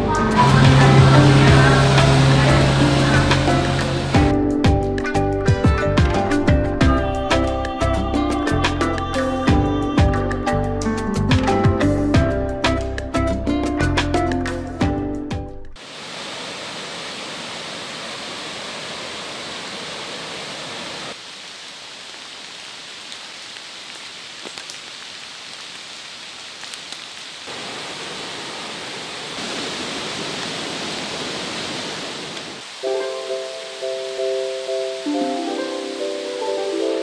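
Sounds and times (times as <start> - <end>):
heavy rain falling: 0.0 - 4.3, 15.8 - 37.0
music: 0.0 - 15.8, 32.8 - 37.0.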